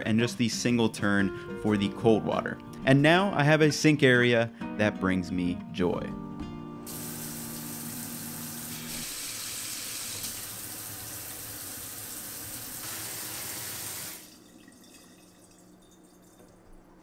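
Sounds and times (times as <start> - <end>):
water running into metal sink: 6.9 - 16.8.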